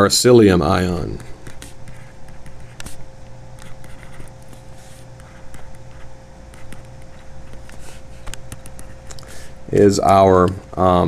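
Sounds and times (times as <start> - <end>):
stylus tapping and scratching on tablet: 1.0 - 9.5.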